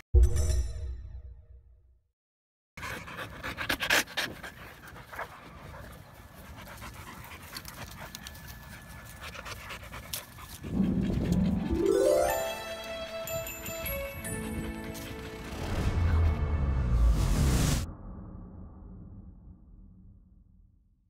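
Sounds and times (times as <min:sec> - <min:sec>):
dogs panting: 0:02.8 - 0:15.9
music: 0:10.7 - 0:17.9.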